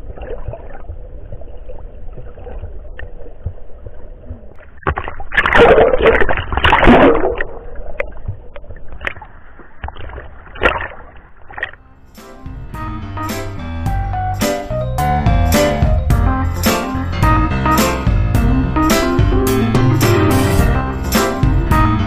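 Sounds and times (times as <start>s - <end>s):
water splashing and bubbling: 0.0s - 11.8s.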